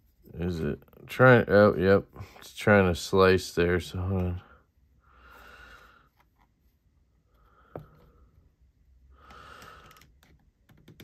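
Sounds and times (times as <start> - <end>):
man breathing out: 9.1 - 10.0.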